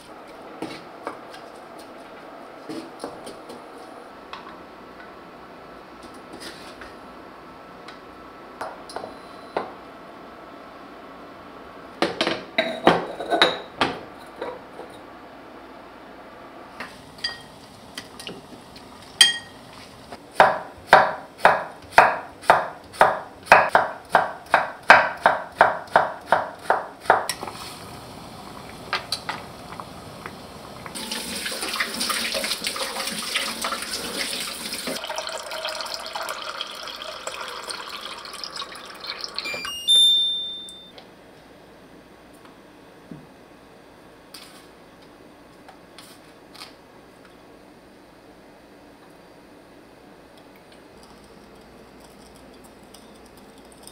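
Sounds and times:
knife chopping: 20.4 - 27.4
running water: 27.5 - 39.6.

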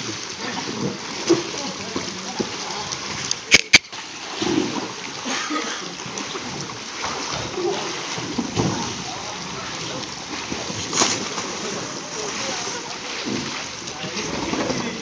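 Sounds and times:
water splashing and sloshing: 0.0 - 15.0
voices calling out: 4.8 - 15.0.

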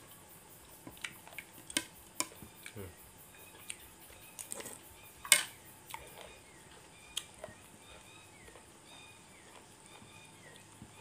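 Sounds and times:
faint high chirps: 2.2 - 11.0.

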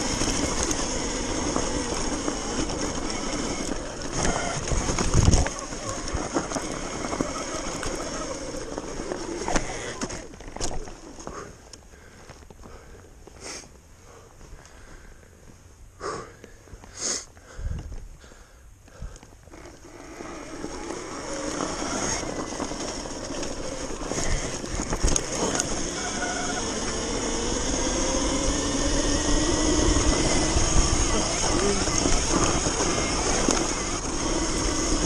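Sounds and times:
electric motor whine: 0.0 - 11.2, 19.5 - 35.0
wind and tyre noise: 0.0 - 35.0.

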